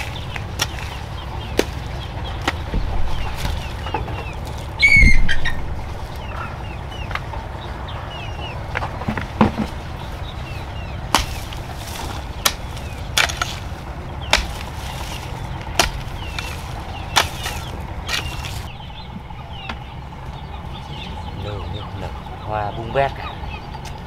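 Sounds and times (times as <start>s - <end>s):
hoe chopping into soil: 0.0s - 1.8s, 11.1s - 18.7s
small birds chirping: 0.0s - 24.0s.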